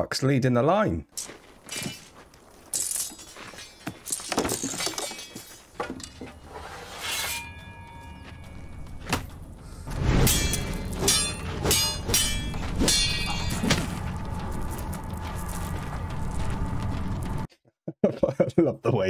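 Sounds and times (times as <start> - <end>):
sharp clanks and crashes: 1.2 - 14.4
metallic ringing tone: 7.1 - 9.1, 10.2 - 14.4.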